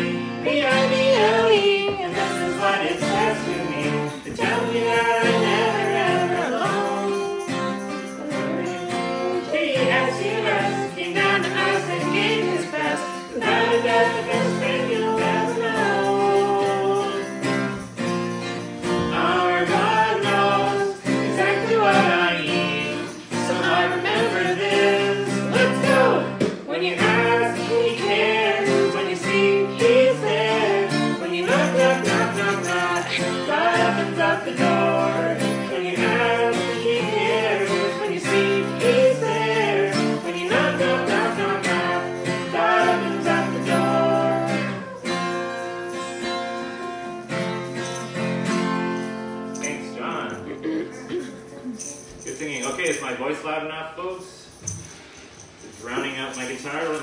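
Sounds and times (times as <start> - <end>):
man singing: 0.0 - 7.6, 8.2 - 17.5, 19.0 - 45.1
acoustic guitar strumming: 0.0 - 53.4.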